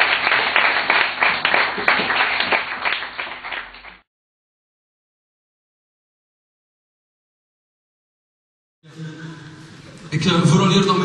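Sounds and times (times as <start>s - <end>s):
audience applauding: 0.0s - 4.1s.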